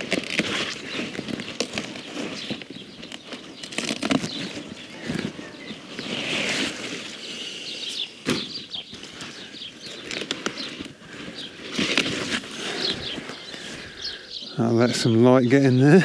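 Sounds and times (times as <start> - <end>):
stalk snapping: 0.0 - 7.1, 8.2 - 13.7
leaves rustling: 0.0 - 16.0.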